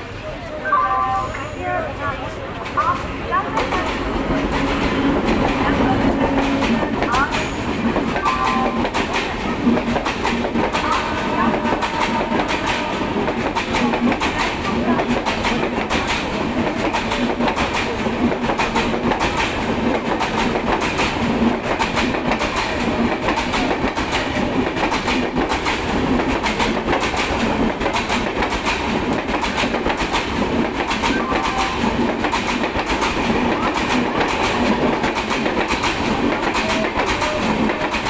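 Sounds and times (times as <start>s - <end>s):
train wheels rumbling on rails: 0.0s - 38.0s
rapid clicking of wheels: 12.5s - 31.2s.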